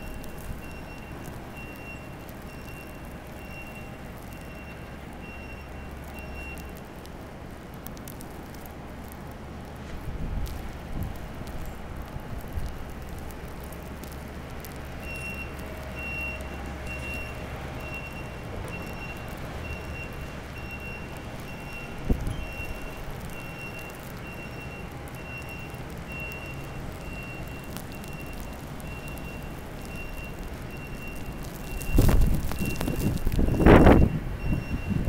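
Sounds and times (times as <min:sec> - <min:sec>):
reversing alarm beeping: 0:00.0 - 0:06.8, 0:15.0 - 0:35.0
low engine rumble: 0:00.0 - 0:35.0
wind rushing over microphone: 0:31.8 - 0:35.0.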